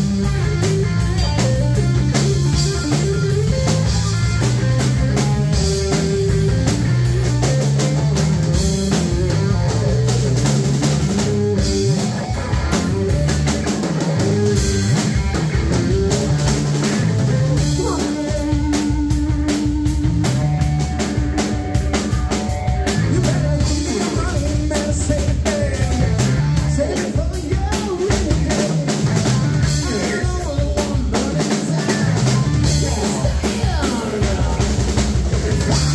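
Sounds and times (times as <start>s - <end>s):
held electric guitar notes: 0.0s - 24.7s
live rock band playing: 0.0s - 35.9s.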